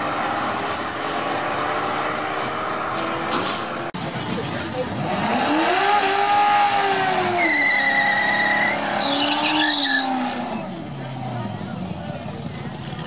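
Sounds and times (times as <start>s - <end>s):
car engine revving: 0.0s - 13.0s
tires squealing: 4.9s - 10.9s.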